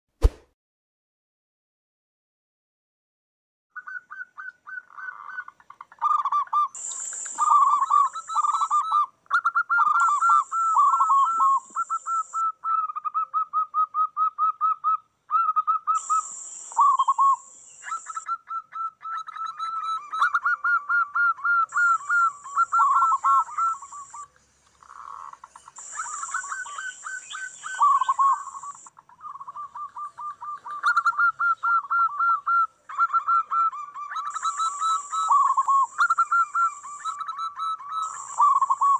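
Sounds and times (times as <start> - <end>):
high hiss: 6.8 - 8.5, 16.0 - 18.2
doves cooing: 7.4 - 38.9.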